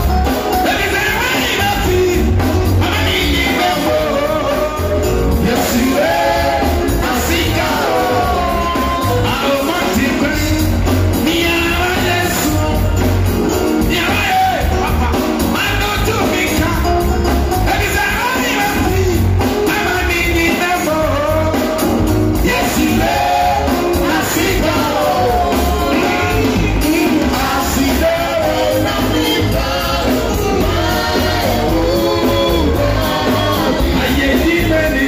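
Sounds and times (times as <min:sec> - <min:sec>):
band with singing voices: 0:00.0 - 0:35.0.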